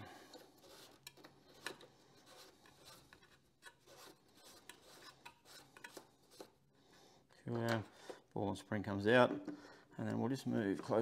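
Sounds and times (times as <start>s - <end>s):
valve cap being unscrewed: 0.3s - 6.6s.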